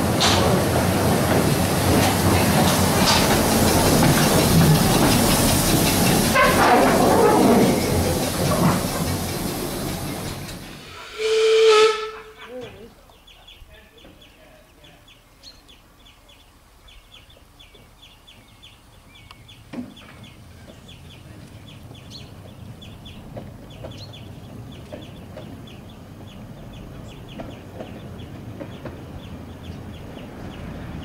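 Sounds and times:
train knock: 0.0 - 12.5, 21.8 - 31.0
miniature train rumbling: 0.0 - 14.4, 17.0 - 31.0
short high calls: 10.8 - 12.6.

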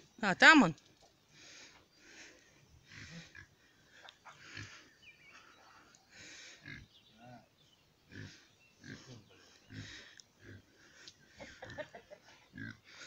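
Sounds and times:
pig grunting: 2.8 - 3.6, 4.3 - 4.9, 6.4 - 6.9, 8.1 - 13.0.

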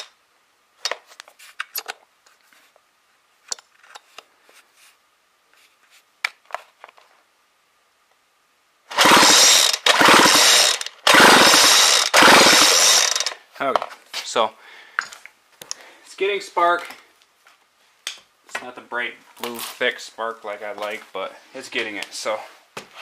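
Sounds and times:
engine ratcheting whirr: 8.9 - 13.4
recoil starter cord pulls: 8.9 - 13.4.

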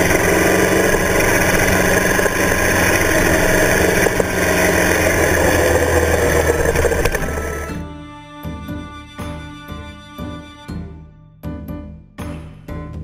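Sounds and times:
wind and road rush: 0.0 - 7.7
motorcycle engine running: 0.0 - 7.8.

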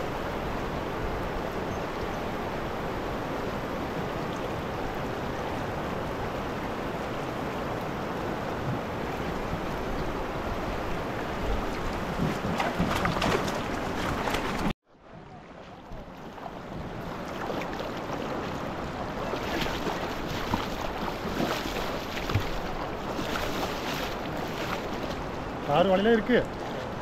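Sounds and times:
wind noise on microphone: 0.0 - 14.7
water sloshing and splashing: 7.5 - 14.8, 15.5 - 27.0.

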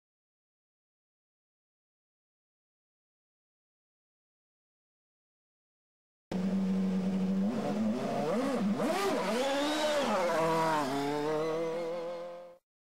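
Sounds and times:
engine revving: 6.3 - 12.6.

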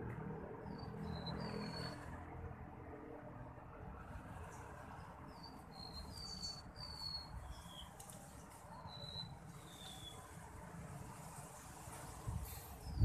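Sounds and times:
songbirds calling high thin notes: 0.6 - 2.1, 4.5 - 10.4.

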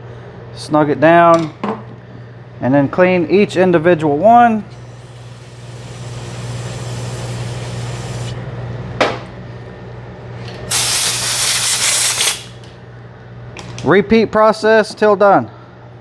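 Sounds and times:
aerosol spray hissing: 4.9 - 8.4, 10.7 - 12.5.

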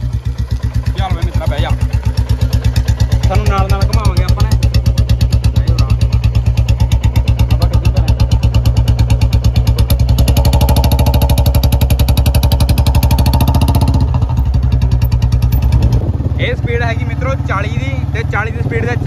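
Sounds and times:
motorcycle exhaust thumping: 0.0 - 19.0.

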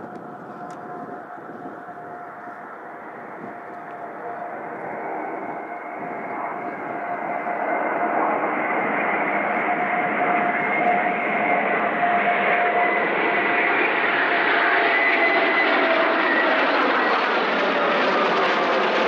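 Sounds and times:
high jet whine: 0.0 - 19.0
jet engines roaring overhead: 0.0 - 19.0.

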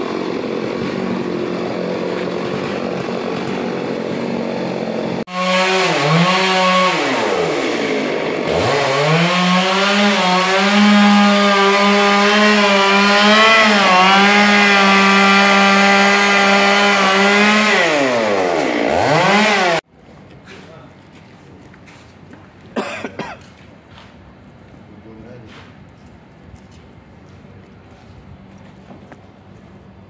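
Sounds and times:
chainsaw running: 0.0 - 19.8.

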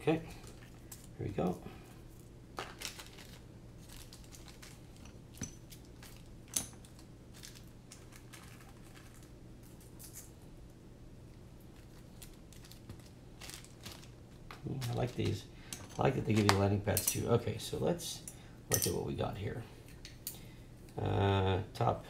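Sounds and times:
low steady hum: 0.0 - 22.0
plastic bag rustling: 2.0 - 10.2, 11.6 - 16.8.

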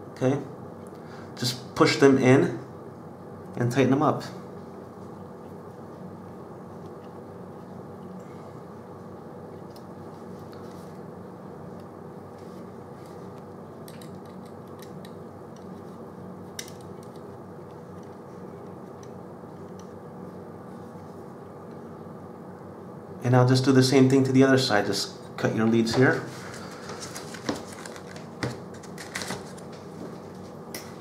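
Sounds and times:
low background hum: 0.0 - 31.0.

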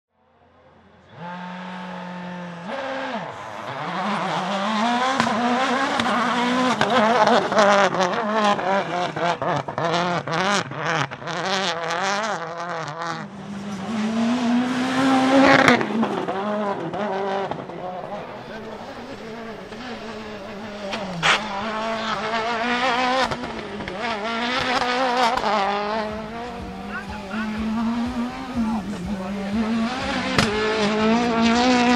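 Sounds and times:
rally car engine revving: 0.2 - 31.9
engine pops and cracks: 30.1 - 30.9.

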